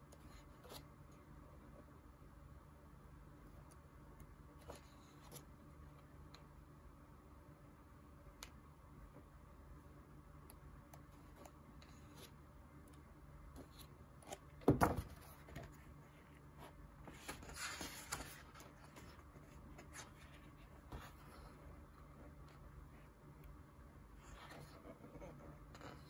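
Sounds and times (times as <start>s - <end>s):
book page flipping: 17.0s - 21.5s
paper sliding rustle: 17.0s - 21.6s.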